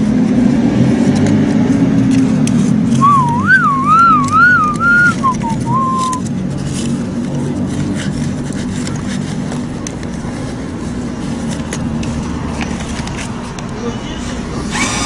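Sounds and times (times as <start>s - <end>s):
person whistling a tune: 3.0s - 6.2s.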